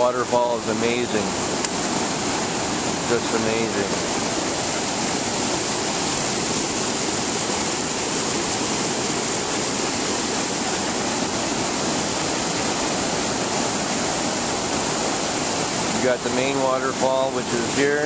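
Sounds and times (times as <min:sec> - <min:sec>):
water rushing over dam: 0:00.0 - 0:18.0.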